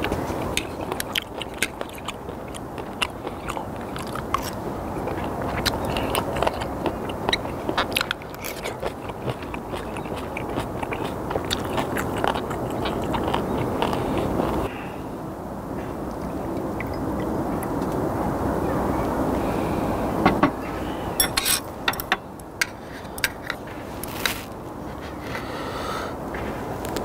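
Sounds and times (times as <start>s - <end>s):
person chewing wet crunches: 0.0s - 14.7s.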